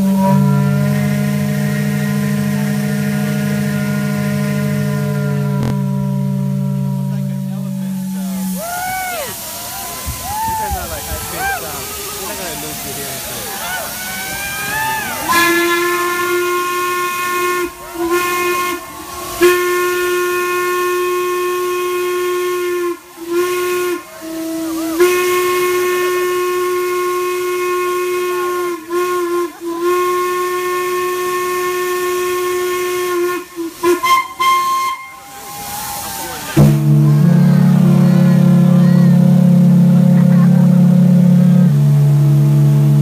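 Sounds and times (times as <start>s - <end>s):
steam whistle blasts: 0.0s - 43.0s
hiss of escaping steam: 7.7s - 36.6s.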